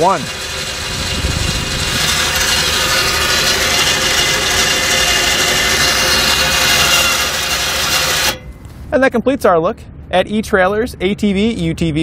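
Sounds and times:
electric winch motor whine: 0.0s - 8.8s.

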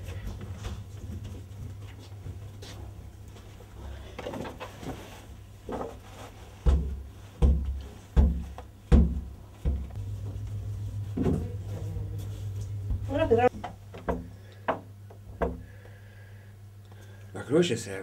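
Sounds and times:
dull thumps patting dough: 6.6s - 10.0s.

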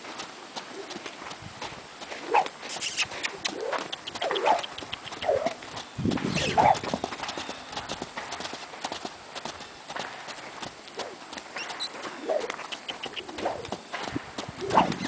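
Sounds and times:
horse hooves striking ground: 0.0s - 15.0s
short pitched calls: 2.6s - 5.6s, 6.2s - 6.8s, 11.5s - 13.6s.

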